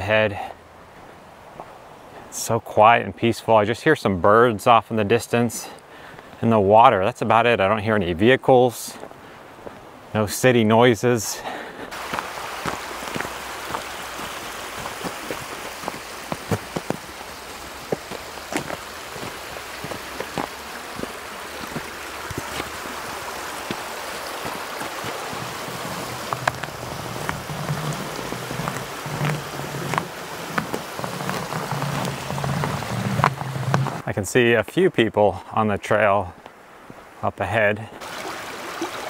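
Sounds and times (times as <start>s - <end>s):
stream rushing under ice: 0.9s - 34.5s, 36.7s - 39.0s
ice clicks and crunches: 12.6s - 22.9s, 23.6s - 34.0s.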